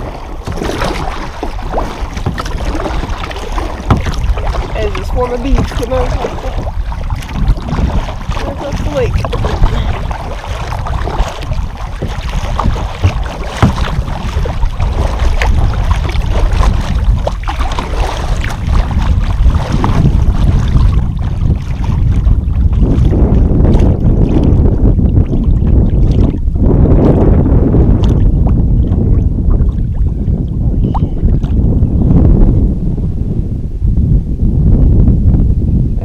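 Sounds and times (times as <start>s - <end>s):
paddle strokes splashing in water: 0.0s - 27.2s, 27.8s - 30.1s
wind buffeting microphone: 0.0s - 36.0s.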